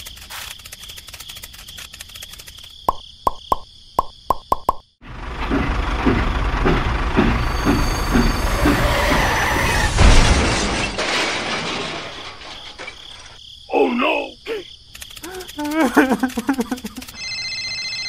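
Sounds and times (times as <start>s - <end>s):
tractor engine chugging: 5.0s - 9.0s.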